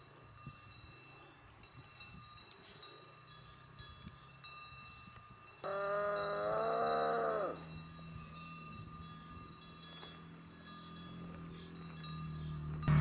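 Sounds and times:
insects chirping in a trill: 0.0s - 13.0s
drawn-out pitched call: 5.6s - 8.0s.

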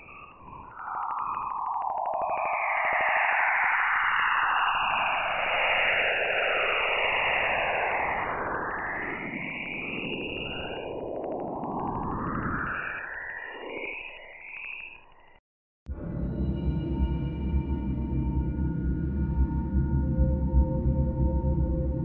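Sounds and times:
eerie hissing sweeping tones: 0.0s - 15.4s.

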